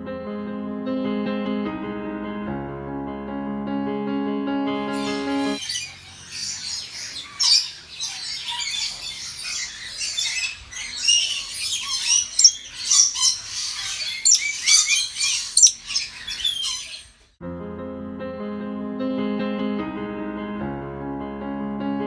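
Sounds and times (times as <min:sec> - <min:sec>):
parrots screeching and chattering: 0:05.0 - 0:17.3.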